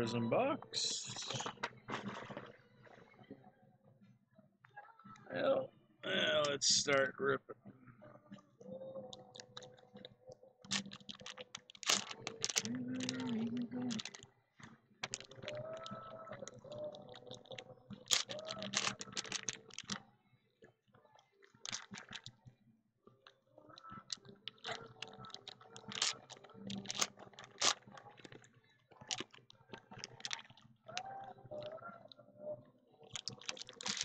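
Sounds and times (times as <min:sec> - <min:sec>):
foil wrappers crinkling and tearing: 0:10.7 - 0:14.2, 0:15.0 - 0:20.0, 0:21.6 - 0:22.3, 0:24.1 - 0:28.4, 0:29.0 - 0:31.1, 0:33.1 - 0:34.0.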